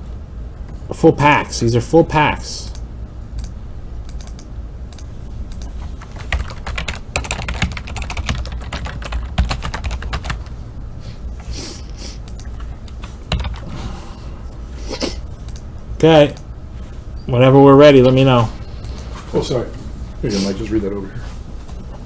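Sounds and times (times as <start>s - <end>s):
computer keyboard typing: 3.4s - 10.6s, 13.3s - 13.7s, 15.4s - 15.6s.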